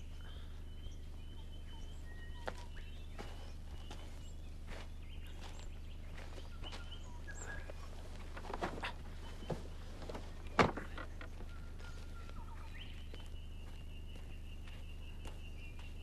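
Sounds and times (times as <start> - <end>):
birds chirping and whistling: 0.0 - 16.0
low outdoor hum: 0.0 - 16.0
knocks on wooden wagon: 10.5 - 11.4.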